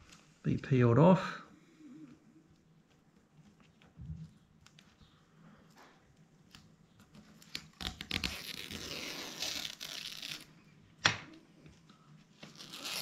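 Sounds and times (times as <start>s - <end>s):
tape tearing off: 7.4s - 10.5s, 12.4s - 13.0s.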